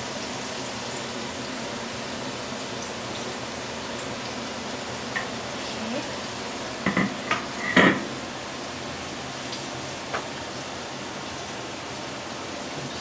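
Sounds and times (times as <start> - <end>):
vegetables sizzling in a pan: 0.0 - 13.0
kitchenware knocking against pan: 6.8 - 8.1.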